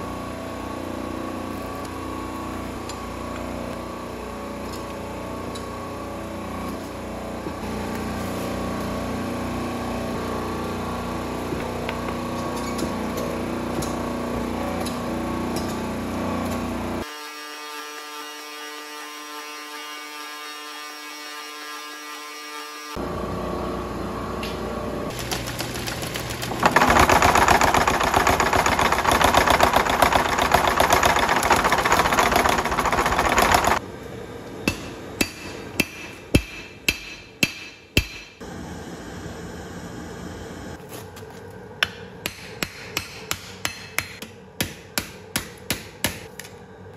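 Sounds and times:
power hammer pounding steel: 0:25.3 - 0:33.8, 0:34.6 - 0:38.4
hand hammer striking anvil: 0:34.7 - 0:38.4, 0:41.8 - 0:46.4.

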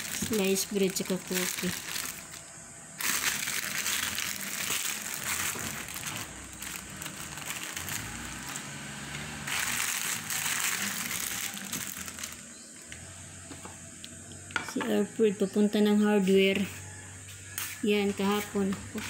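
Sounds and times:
plastic bag crinkling: 0:00.0 - 0:12.9.

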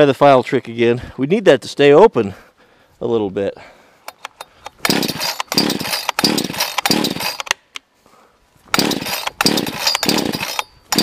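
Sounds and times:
chainsaw engine cranking: 0:04.1 - 0:07.6, 0:08.7 - 0:11.0
starter cord yanked: 0:04.1 - 0:07.6, 0:08.7 - 0:11.0.

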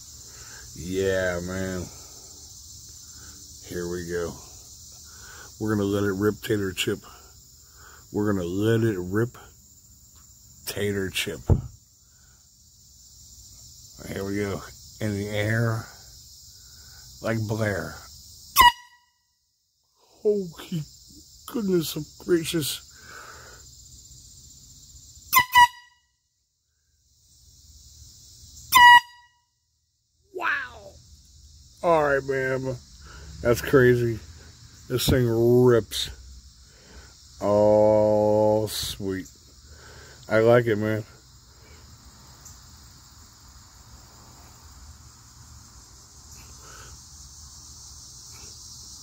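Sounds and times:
crickets chirring: 0:00.0 - 0:49.0
insects chorus: 0:00.0 - 0:49.0
air horn toots: 0:18.6 - 0:19.2, 0:25.3 - 0:26.1, 0:28.7 - 0:29.4.

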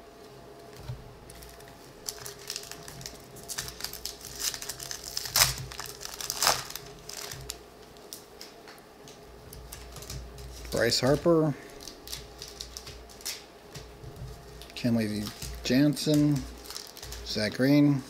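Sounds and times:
foil wrapper crinkling and tearing: 0:01.3 - 0:08.2, 0:09.7 - 0:13.5, 0:14.4 - 0:17.8.

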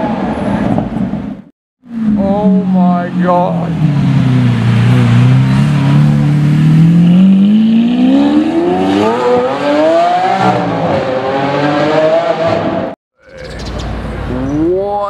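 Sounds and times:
sports car accelerating hard: 0:03.6 - 0:13.0.

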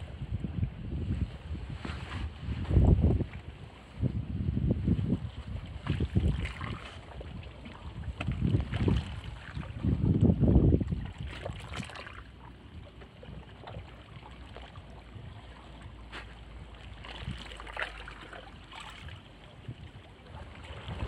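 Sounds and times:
water lapping against rocks: 0:05.2 - 0:21.0
small water splashes: 0:05.4 - 0:21.0.

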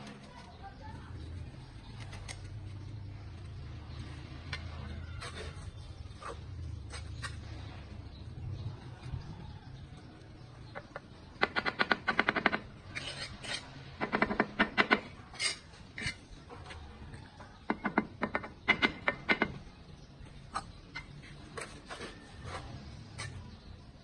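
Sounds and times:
trowel tapping bricks: 0:10.7 - 0:16.3, 0:17.6 - 0:19.6.

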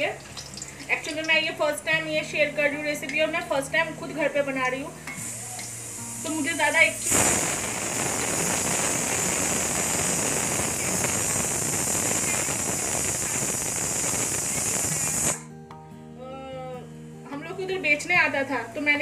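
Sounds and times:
fritters sizzling in hot oil: 0:00.0 - 0:01.6, 0:05.2 - 0:15.4.

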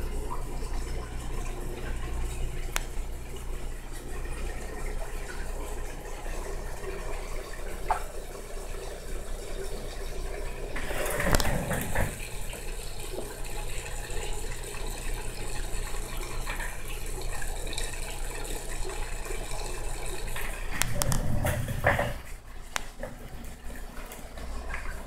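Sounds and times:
water trickling and splashing: 0:00.0 - 0:25.0
knock and splash: 0:10.8 - 0:12.3, 0:20.9 - 0:22.3.

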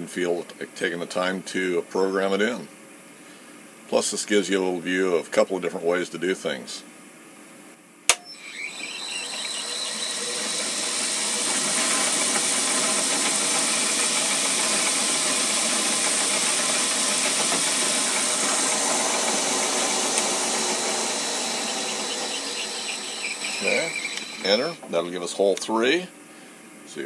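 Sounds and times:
drill cutting metal: 0:08.2 - 0:24.8
milling machine motor running: 0:08.3 - 0:24.9.

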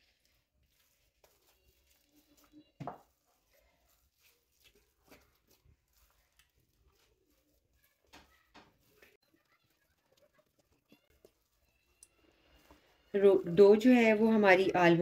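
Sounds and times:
hands kneading dough: 0:00.0 - 0:15.0
dough thump: 0:02.8 - 0:03.2.

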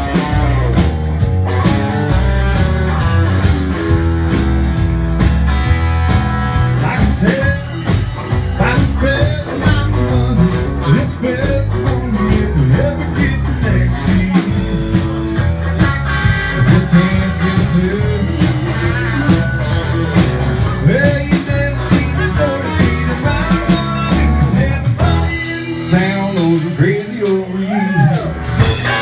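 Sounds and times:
acoustic guitar strumming: 0:00.0 - 0:27.2, 0:28.5 - 0:29.0
drum kit beat: 0:00.0 - 0:29.0
electric bass: 0:00.0 - 0:29.0
electric guitar: 0:00.0 - 0:29.0
man singing: 0:06.5 - 0:15.4, 0:16.3 - 0:29.0.

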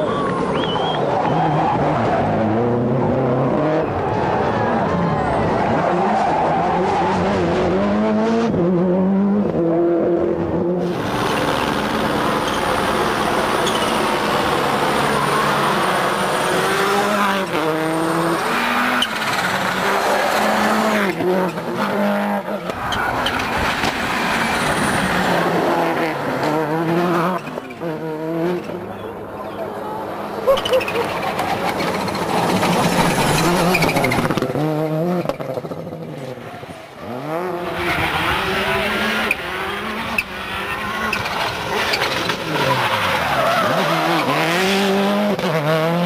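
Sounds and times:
rally car engine at full revs: 0:00.0 - 0:46.0.

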